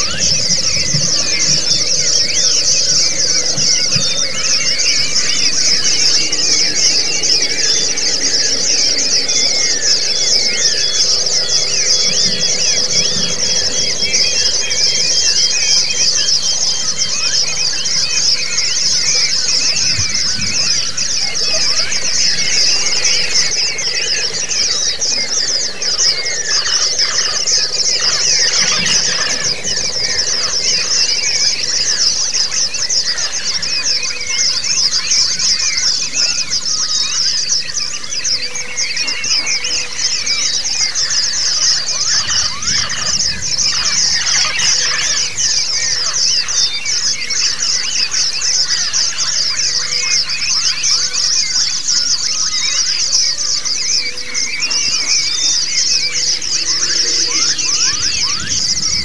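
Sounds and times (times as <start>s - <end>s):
bird twittering and trilling: 0.0s - 59.0s.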